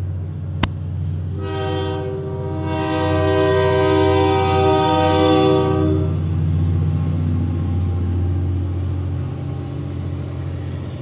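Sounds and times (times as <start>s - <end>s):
locomotive air horn: 1.3s - 6.4s.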